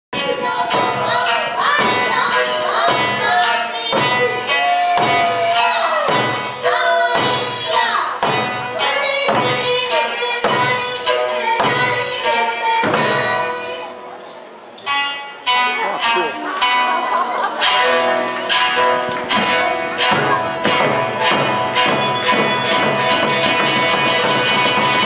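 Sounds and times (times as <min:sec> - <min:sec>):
barrel drums and hand drums: 0:00.2 - 0:13.9, 0:14.8 - 0:25.0
person singing: 0:00.2 - 0:14.1
folk music: 0:00.2 - 0:25.0.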